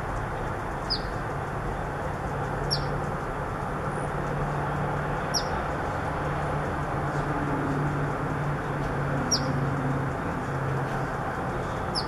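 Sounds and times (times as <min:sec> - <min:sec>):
bird chip calls: 0:00.8 - 0:01.2, 0:02.6 - 0:03.0, 0:05.2 - 0:05.6, 0:09.2 - 0:09.6, 0:11.6 - 0:12.0.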